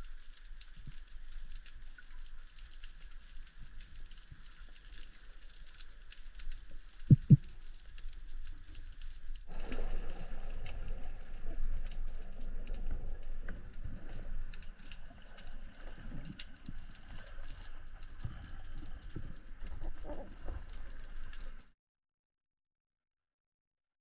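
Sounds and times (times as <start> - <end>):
fine underwater crackling: 0.0 - 21.8
low knocks: 7.1 - 7.4.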